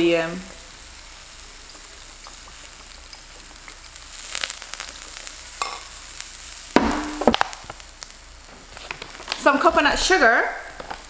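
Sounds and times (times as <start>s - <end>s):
zucchini sizzling on griddle: 0.0s - 11.0s.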